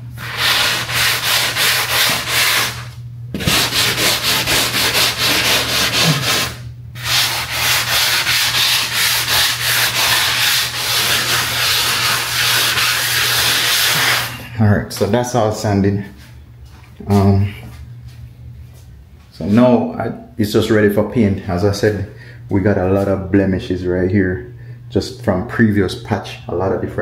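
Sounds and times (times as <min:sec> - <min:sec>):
steady low hum: 0:00.0 - 0:27.0
sanding block rubbing drywall: 0:00.2 - 0:14.4.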